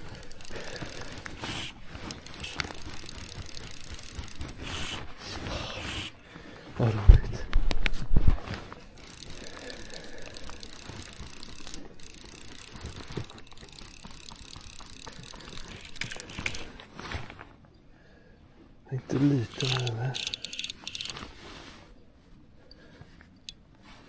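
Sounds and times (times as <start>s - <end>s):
fishing reel ratchet clicking: 0.0s - 1.4s, 2.0s - 4.8s, 8.9s - 16.7s, 19.5s - 21.3s.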